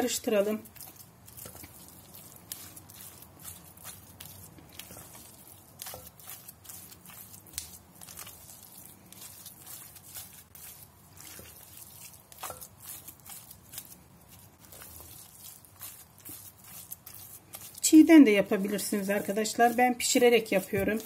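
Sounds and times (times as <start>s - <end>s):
spatula squelching thick paste: 0.0s - 21.0s
spatula tapping glass bowl: 12.3s - 12.8s.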